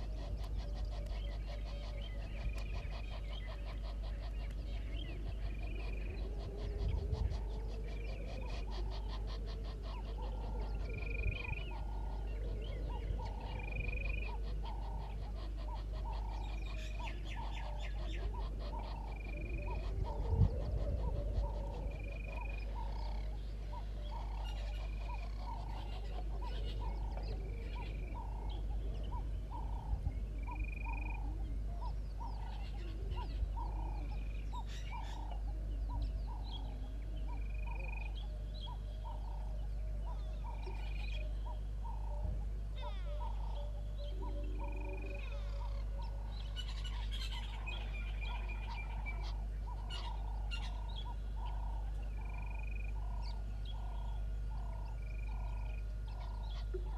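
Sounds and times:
frogs calling in chorus: 0.0 - 56.9.

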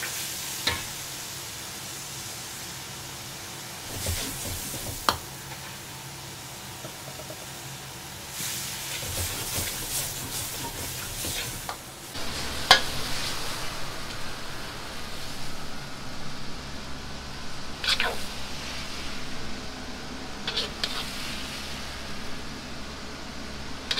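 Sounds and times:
food sizzling in a wok: 0.0 - 23.9
gas burner rushing: 3.8 - 5.7, 8.2 - 23.9
metal ladle scraping a wok: 17.8 - 18.3, 20.5 - 21.3.

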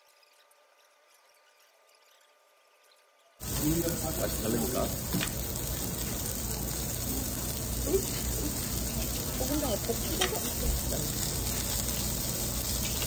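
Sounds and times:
pork sizzling on a grill: 3.4 - 13.0.

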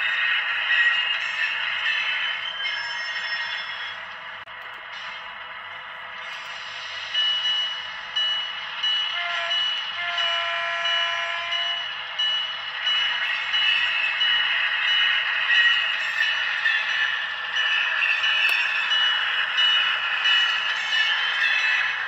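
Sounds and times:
locomotive horn: 9.1 - 11.8.

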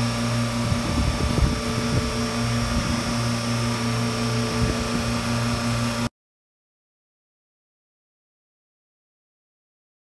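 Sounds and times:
industrial machine humming and whirring: 0.0 - 6.1.

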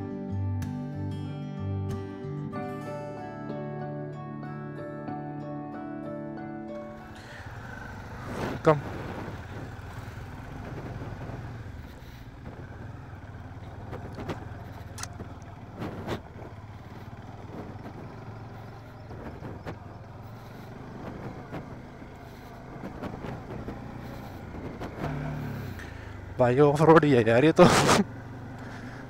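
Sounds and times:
motorcycle engine running: 6.8 - 29.0
knocks and clatters: 7.2 - 25.9.

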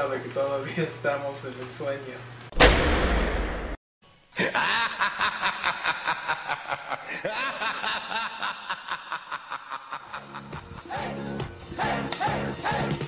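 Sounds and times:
person laughing rhythmically: 4.4 - 13.0.

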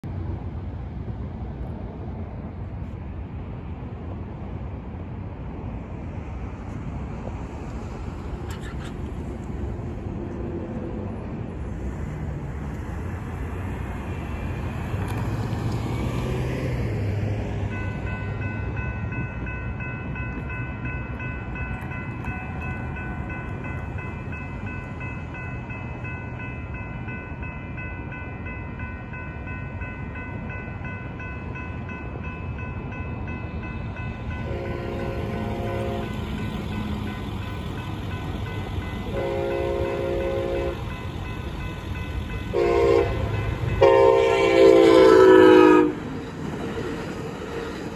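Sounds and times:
outdoor background noise: 0.0 - 47.9
railroad crossing warning bell: 14.0 - 47.9.

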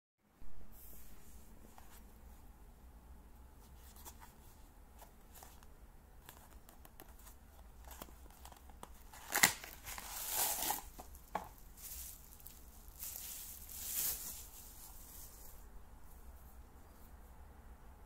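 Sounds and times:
bubble wrap rustling: 3.7 - 16.3
box flap snapping: 8.8 - 11.1.

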